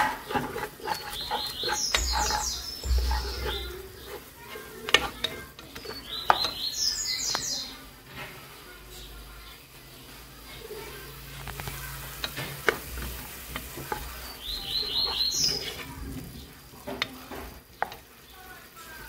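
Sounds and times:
wooden spoon knocking pot: 0:00.0 - 0:07.4, 0:12.2 - 0:15.9, 0:16.8 - 0:18.1
vegetables sizzling in oil: 0:00.0 - 0:19.0
high chirps: 0:00.8 - 0:04.3, 0:05.8 - 0:07.7, 0:14.1 - 0:15.8.

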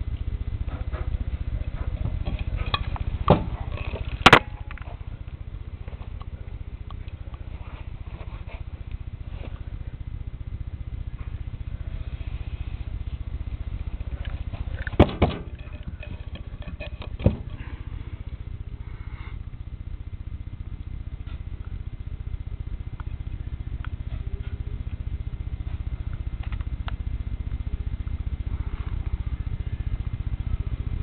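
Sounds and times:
low handling rumble: 0:00.0 - 0:31.0
sharp knocks: 0:14.9 - 0:15.6.

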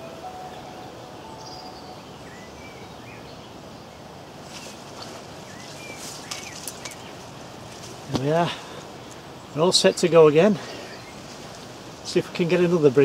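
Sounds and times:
birds whistling and chirping: 0:00.4 - 0:07.2, 0:08.6 - 0:11.4.

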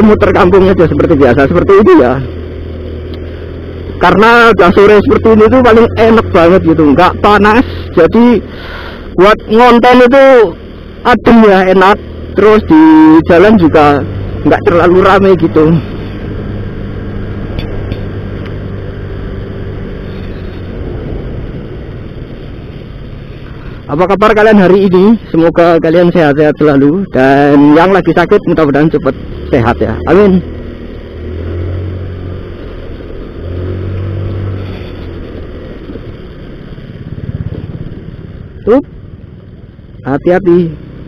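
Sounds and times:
motorcycle engine running: 0:00.0 - 0:41.0
wind and road noise: 0:00.0 - 0:41.0
motor scooter engine running: 0:28.6 - 0:41.0.

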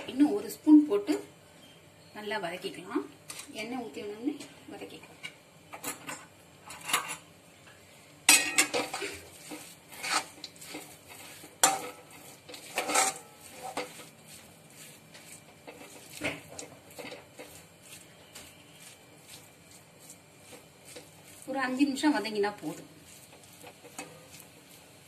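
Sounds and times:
metal spatula scraping metal pan: 0:08.3 - 0:24.7
food sizzling in oil: 0:08.3 - 0:25.0.

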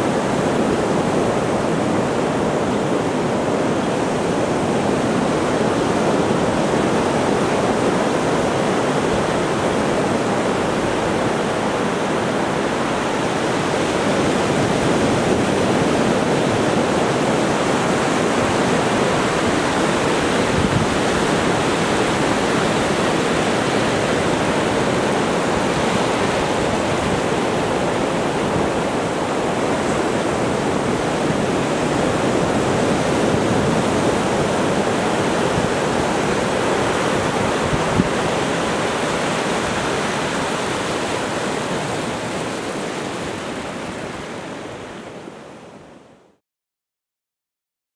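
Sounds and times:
water washing over sand: 0:00.0 - 0:45.1
ocean surf breaking: 0:00.0 - 0:45.9.

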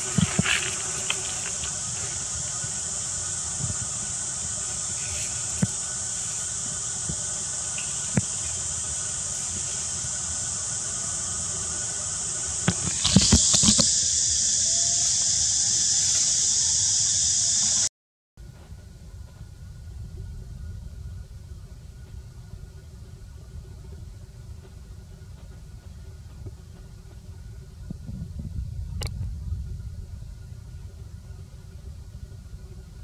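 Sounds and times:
insects droning: 0:00.0 - 0:33.0.

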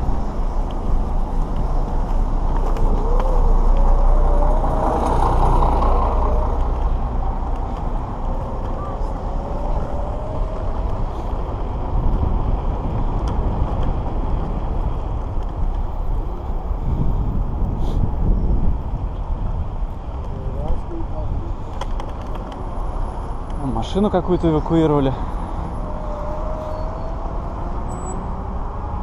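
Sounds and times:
wheels rumbling on asphalt: 0:00.0 - 0:29.0
wind buffeting microphone: 0:00.0 - 0:29.0.

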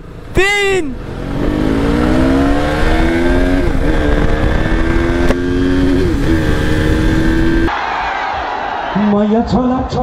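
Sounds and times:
motorcycle engine accelerating: 0:00.0 - 0:07.7.

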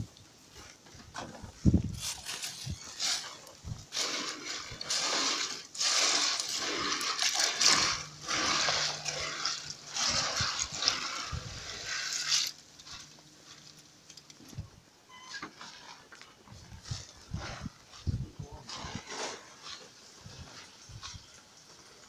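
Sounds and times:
plastic pieces rattling in water: 0:02.0 - 0:13.1.

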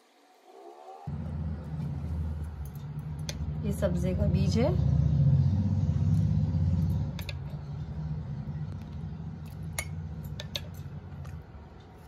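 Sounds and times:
low steady rumble: 0:01.1 - 0:12.0.

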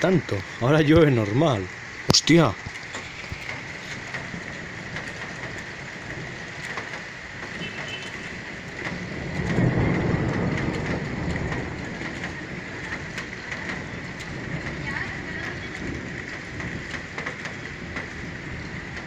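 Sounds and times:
steady rain falling: 0:00.0 - 0:19.0
thunder rolling: 0:00.0 - 0:19.0.

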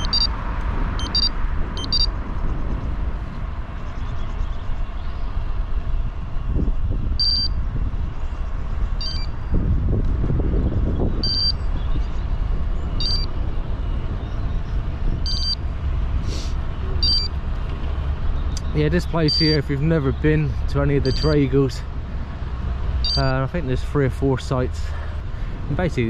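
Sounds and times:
short high electronic beep: 0:00.0 - 0:00.3, 0:01.0 - 0:02.1, 0:17.0 - 0:17.3, 0:23.0 - 0:23.3
bike road noise: 0:00.0 - 0:26.0
wind rumble on microphone: 0:00.0 - 0:26.0.

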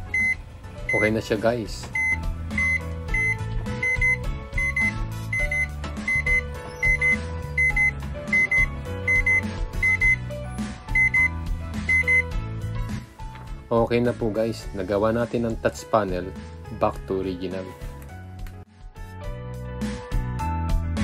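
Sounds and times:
microwave keypad beeps: 0:00.0 - 0:01.1, 0:01.9 - 0:10.3, 0:10.9 - 0:12.3
background music with steady beat: 0:00.0 - 0:21.0.

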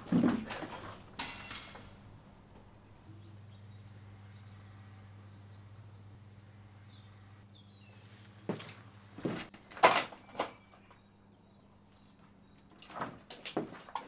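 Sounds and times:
low steady hum: 0:00.0 - 0:09.5
faint bird chirps: 0:02.6 - 0:08.2.

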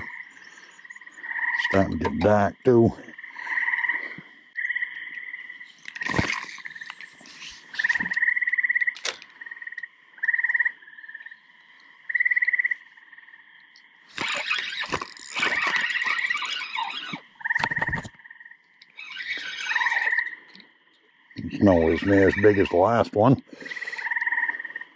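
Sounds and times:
faint frog chorus: 0:00.0 - 0:24.9
frogs trilling: 0:00.0 - 0:24.9
fishing rod rustling: 0:05.8 - 0:08.2, 0:08.9 - 0:09.3, 0:14.1 - 0:18.1.

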